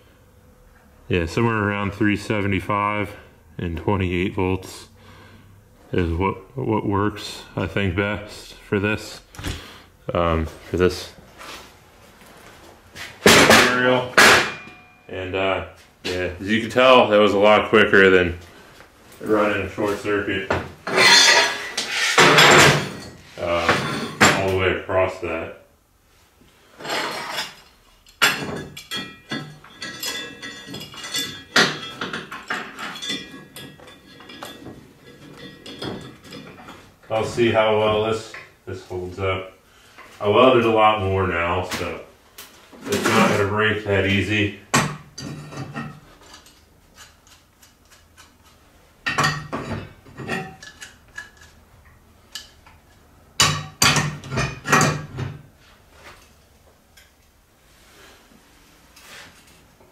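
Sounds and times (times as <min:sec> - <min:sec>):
metal tools clanking on table: 0:20.8 - 0:24.4, 0:26.8 - 0:36.8, 0:45.2 - 0:48.3, 0:49.1 - 0:51.6.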